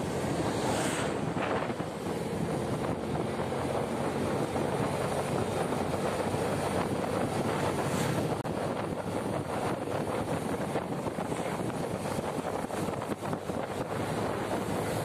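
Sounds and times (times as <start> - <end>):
engine and road noise: 0.0 - 15.0
wind on microphone: 0.0 - 15.0.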